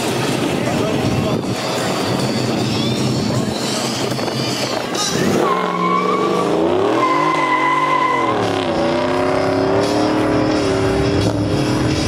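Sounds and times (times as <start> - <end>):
tires squealing: 0.0 - 12.0
car engine revving hard: 5.2 - 12.0.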